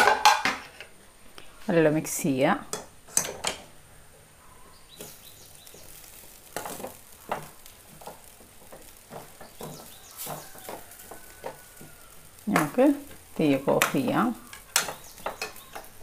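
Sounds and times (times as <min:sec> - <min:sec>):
spoon scraping and knocking pan: 0:00.0 - 0:00.9, 0:05.0 - 0:16.0.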